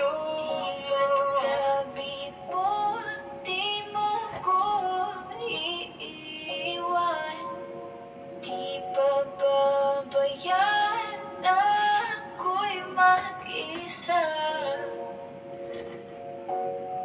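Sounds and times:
woman singing pop song: 0.0s - 7.8s, 8.4s - 15.1s
held backing chords: 0.0s - 17.0s.

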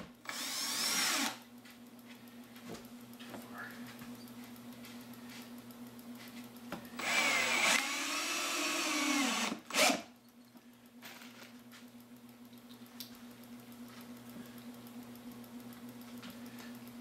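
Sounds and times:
cordless drill driving screw: 0.2s - 1.4s, 7.0s - 10.1s.

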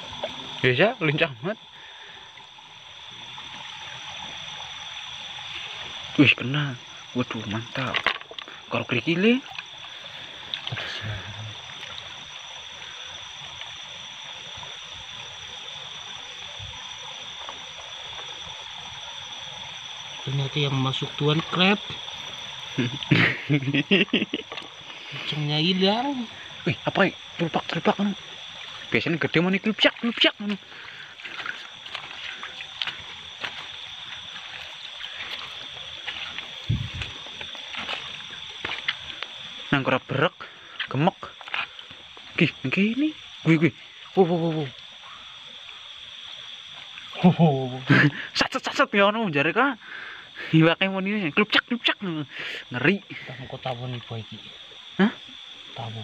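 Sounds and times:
stream flowing over stones: 0.0s - 49.3s
steady high-pitched tone: 2.8s - 41.3s.

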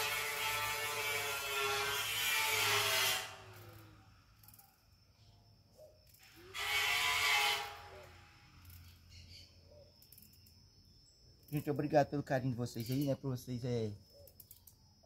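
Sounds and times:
electric power tool motor whining: 6.2s - 8.6s.

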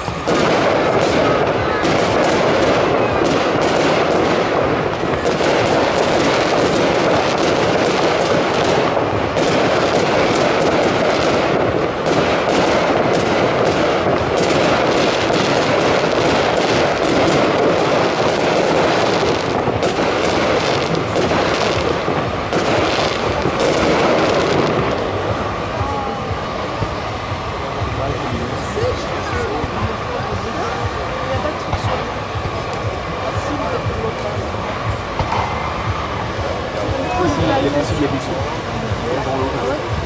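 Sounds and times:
fireworks bangs and crackles: 0.0s - 40.0s.

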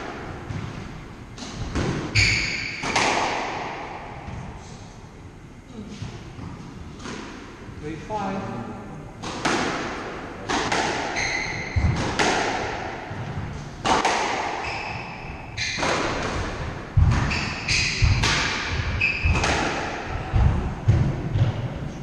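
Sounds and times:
squash ball hitting rackets and walls: 0.0s - 4.6s, 6.0s - 7.6s, 9.2s - 22.0s
shoes squeaking on wooden floor: 11.1s - 12.0s.

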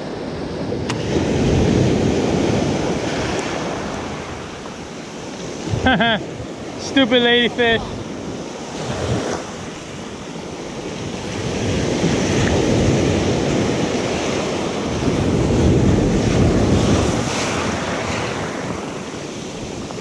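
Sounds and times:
surf on gravelly shore: 0.0s - 20.0s
wind rumbling on microphone: 0.0s - 20.0s.

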